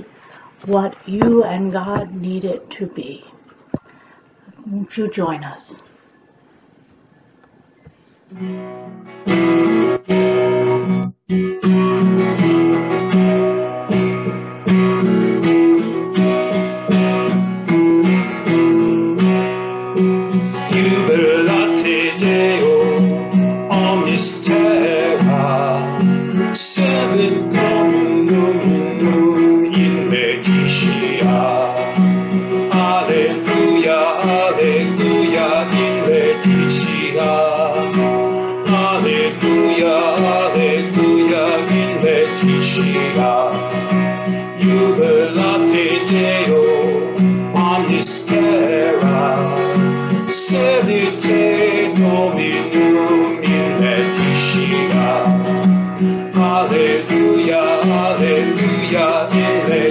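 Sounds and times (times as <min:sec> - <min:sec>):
acoustic guitar strumming: 0:00.0 - 0:04.1, 0:04.9 - 0:59.9
man singing a slow chant: 0:20.6 - 0:55.6, 0:56.3 - 0:59.9.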